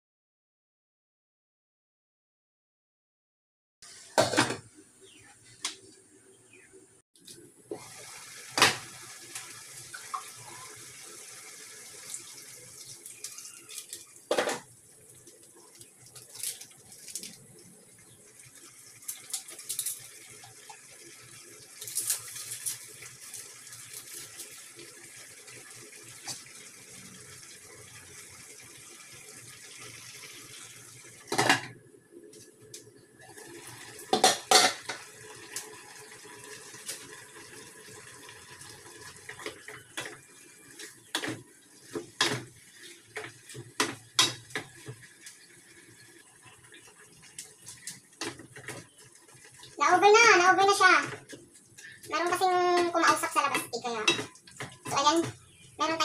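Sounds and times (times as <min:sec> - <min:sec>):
food sizzling in pots: 0:03.8 - 0:05.9, 0:07.6 - 0:56.0
pot lids and pots clattering: 0:04.2 - 0:04.7, 0:13.3 - 0:14.7, 0:19.1 - 0:20.1, 0:31.2 - 0:31.8, 0:34.1 - 0:35.1, 0:40.8 - 0:45.0, 0:52.7 - 0:55.4.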